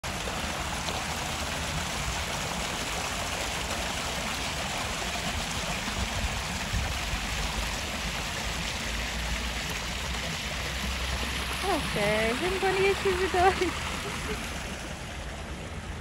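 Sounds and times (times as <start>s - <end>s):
water rushing down stone channel: 0.0s - 16.0s.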